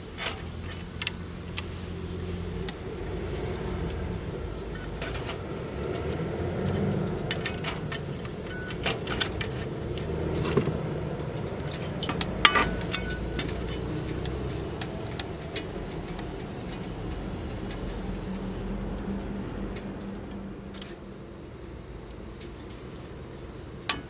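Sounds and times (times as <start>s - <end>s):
low background rumble: 0.0s - 22.3s
light metallic clicks and clinks: 11.3s - 18.0s.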